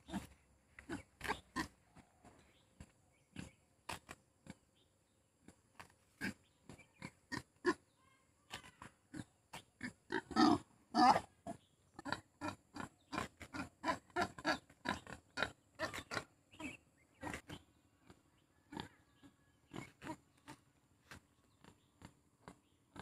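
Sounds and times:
pig grunting: 0.0 - 1.8, 9.1 - 20.6.

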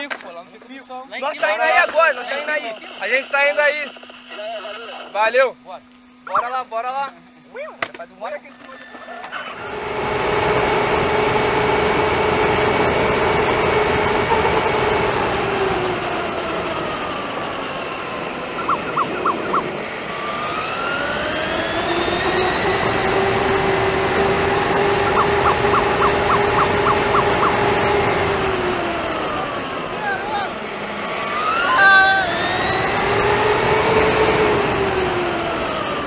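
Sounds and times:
electric drivetrain whining: 1.2 - 5.4, 8.8 - 36.0
short high chirps: 18.6 - 19.6.

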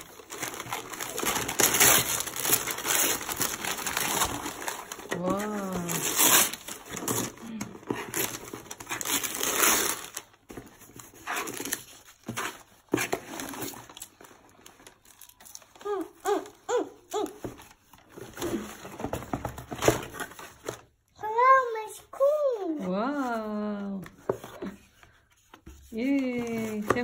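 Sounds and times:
wrapping paper tearing and crinkling: 0.0 - 18.8.

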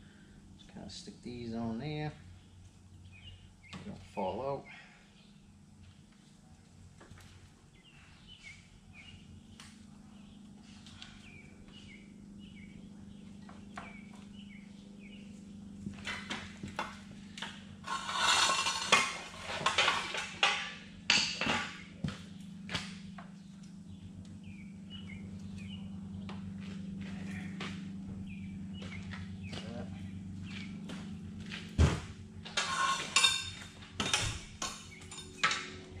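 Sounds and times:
steady low hum: 0.0 - 36.0
birds chirping: 0.5 - 6.7, 7.6 - 16.0, 21.4 - 31.6, 32.6 - 36.0
metal brackets clattering and scraping: 17.8 - 21.8, 32.5 - 35.8.

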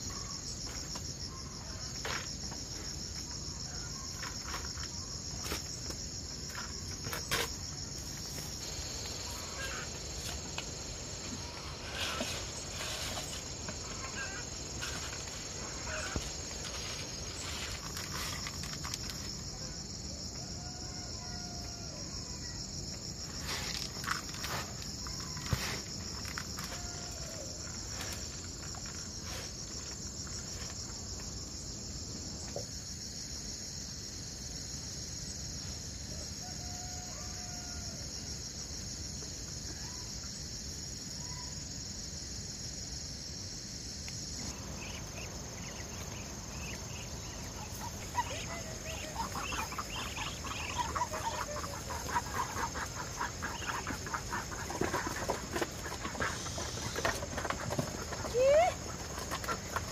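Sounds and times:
insects shrilling: 3.6 - 19.5, 43.8 - 59.9
chickens clucking: 44.6 - 59.9.

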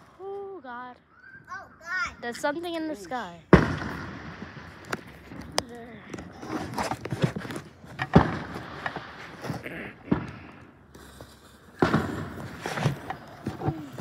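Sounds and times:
firework bangs: 3.5 - 5.6, 8.0 - 13.6.

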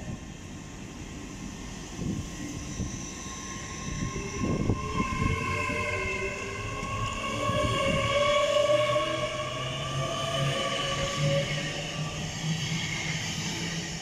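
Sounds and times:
train traction whine: 0.0 - 14.0.

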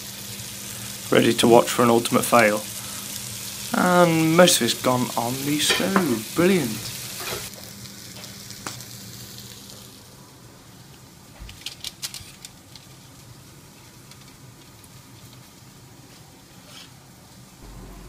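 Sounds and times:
chicken sizzling in a pan: 0.0 - 11.4, 12.2 - 18.0
steady low hum: 17.6 - 18.0.

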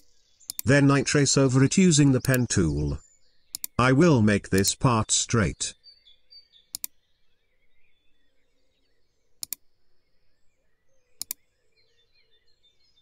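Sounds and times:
computer mouse double clicks: 0.0 - 0.6, 3.5 - 3.8, 11.2 - 11.4
birdsong: 0.0 - 13.0.

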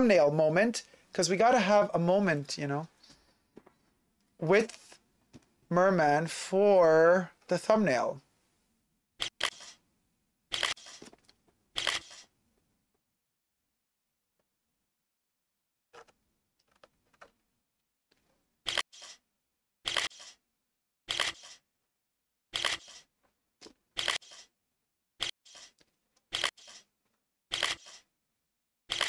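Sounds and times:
camera shutter clicking: 9.2 - 9.8, 10.5 - 11.1, 11.8 - 12.3, 18.7 - 19.2, 19.9 - 20.4, 21.1 - 21.6, 22.6 - 23.1, 24.0 - 24.5, 25.2 - 26.9, 27.5 - 28.0.

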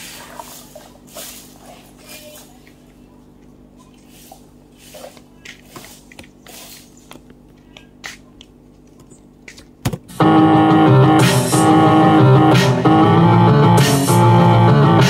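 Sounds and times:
keyboard melody over heavy bass: 10.2 - 15.0.

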